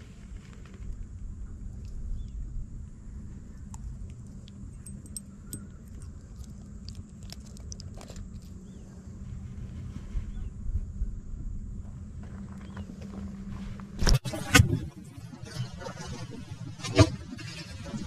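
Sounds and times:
low rumble: 0.0s - 16.8s.

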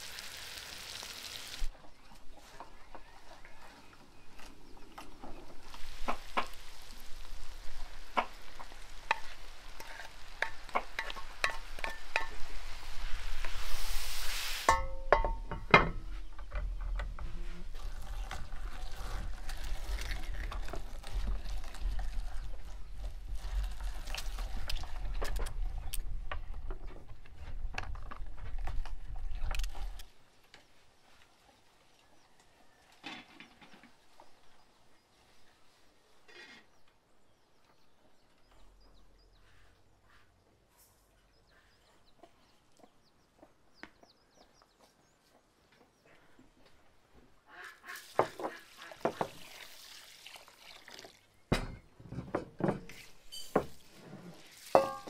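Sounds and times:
frying sizzle: 0.0s - 1.7s, 5.6s - 15.3s
metal pans clattering: 54.7s - 55.0s.

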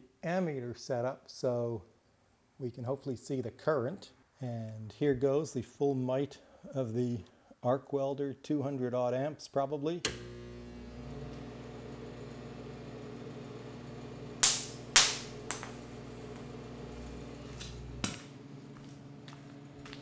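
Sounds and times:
arc welder humming: 10.1s - 20.0s
sharp electrical cracks: 14.4s - 16.0s, 17.5s - 18.4s.

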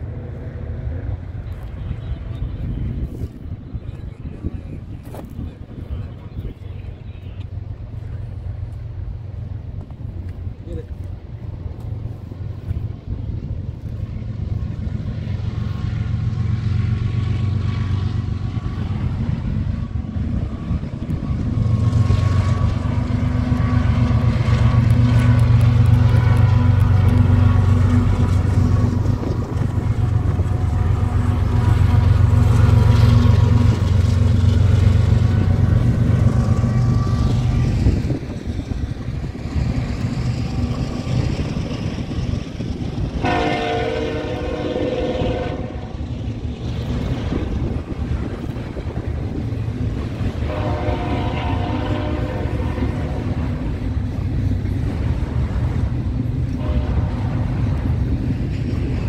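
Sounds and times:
diesel locomotive engine running: 0.0s - 59.0s
train cars rolling rumble: 0.0s - 59.0s
locomotive air horn blasts: 43.2s - 45.9s, 50.4s - 53.4s, 56.6s - 57.4s.

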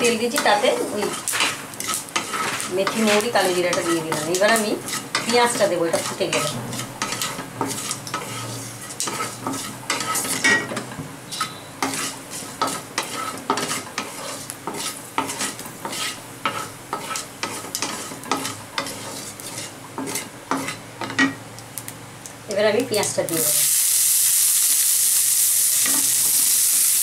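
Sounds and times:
seeds sizzling in hot oil: 0.0s - 10.6s, 11.3s - 27.0s
wooden spatula scraping a wok: 0.0s - 21.2s.

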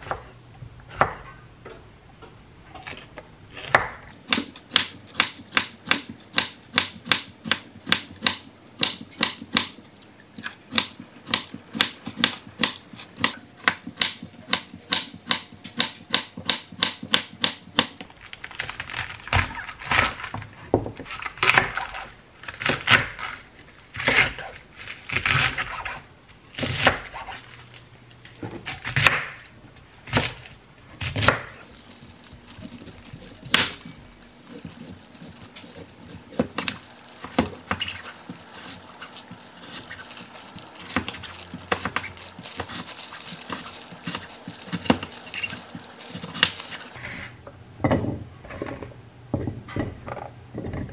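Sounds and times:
knife crunching through cabbage: 18.0s - 26.0s, 30.0s - 47.0s.

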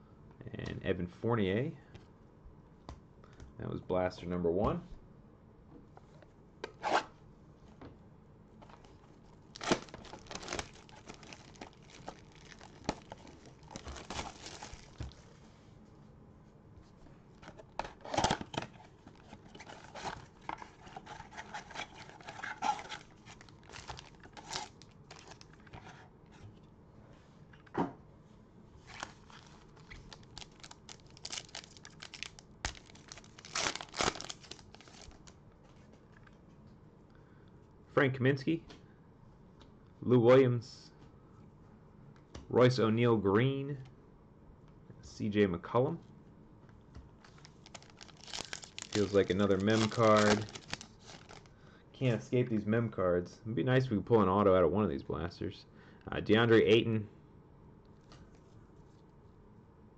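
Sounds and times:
crinkling: 8.6s - 15.5s, 17.3s - 26.0s, 28.8s - 36.4s, 47.2s - 51.5s
foil pack tearing: 9.6s - 15.2s, 21.4s - 25.5s, 28.9s - 35.3s, 47.3s - 51.5s.

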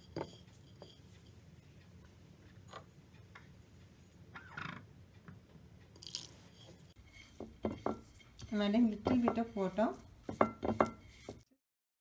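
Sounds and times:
fingers scraping paste on plate: 6.5s - 11.4s.

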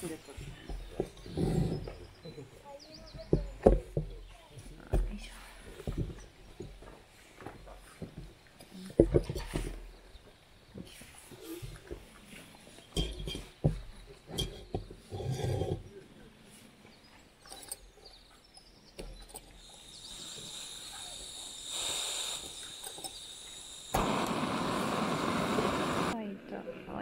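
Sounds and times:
faint gas hiss: 19.6s - 26.2s
burner lighting with steady rush: 19.6s - 27.0s
sharp igniter click: 21.8s - 26.2s.

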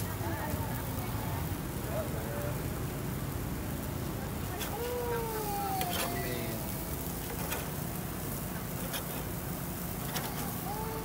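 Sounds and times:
burger patties sizzling on grill: 0.0s - 11.0s
metal spatula clicking and scraping: 8.7s - 9.4s.

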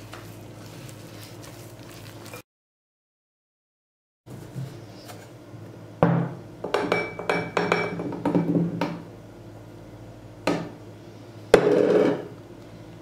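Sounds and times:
glass bowl knocks and clinks: 6.1s - 8.6s.

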